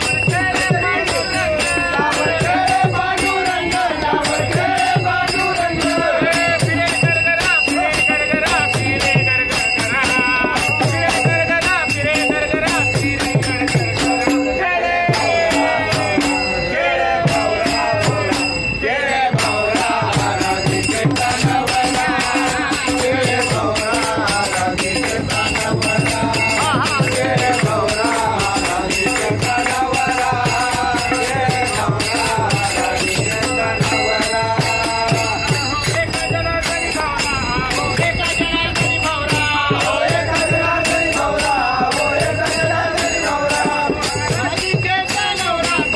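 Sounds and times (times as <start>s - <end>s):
men singing together: 0.0s - 45.9s
steady percussion beat: 0.0s - 45.9s.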